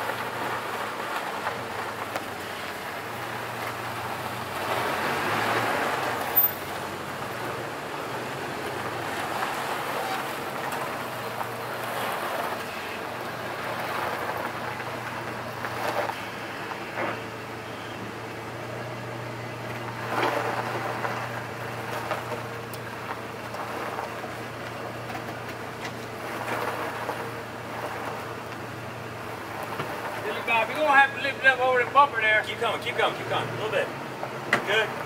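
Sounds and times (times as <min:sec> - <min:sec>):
pickup truck engine idling: 0:00.0 - 0:35.0.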